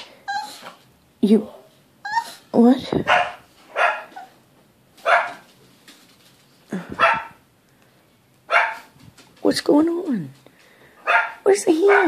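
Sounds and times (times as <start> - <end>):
small dog barking: 3.0 - 4.3, 5.0 - 5.4, 6.9 - 7.4, 8.5 - 8.9, 11.0 - 12.0.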